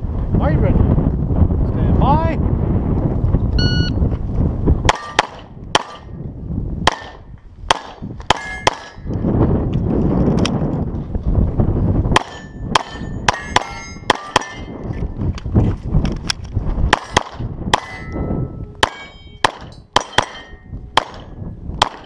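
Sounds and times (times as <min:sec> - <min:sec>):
pistol shots: 0:04.9 - 0:06.1, 0:06.9 - 0:09.0, 0:16.9 - 0:18.1, 0:18.8 - 0:22.0
steel plate ringing clang: 0:08.3 - 0:09.1, 0:12.2 - 0:14.8, 0:17.8 - 0:21.2.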